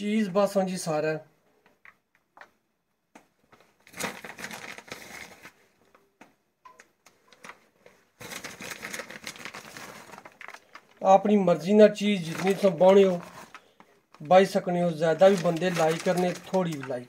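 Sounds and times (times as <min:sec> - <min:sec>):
packaging and foil crinkling: 0:03.8 - 0:05.6, 0:07.1 - 0:11.1, 0:12.1 - 0:17.0.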